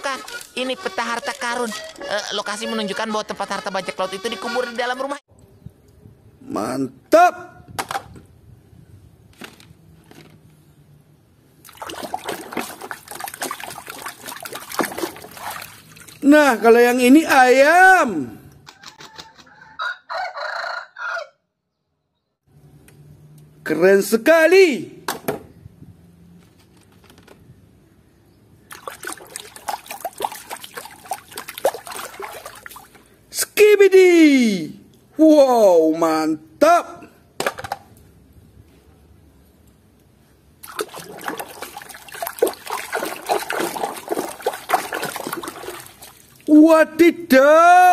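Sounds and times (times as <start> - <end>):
hands sloshing toys in water: 11.6 - 16.3, 28.7 - 33.1, 40.6 - 46.5
water splashing and trickling: 11.6 - 16.8, 28.6 - 33.3, 40.6 - 46.6.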